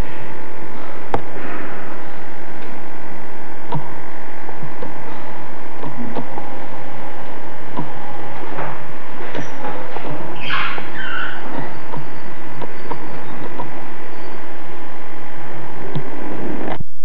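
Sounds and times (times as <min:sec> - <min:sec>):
electrical hum with tones: 0:00.0 - 0:17.0
faint clicks and knocks: 0:03.6 - 0:04.0, 0:04.6 - 0:13.9.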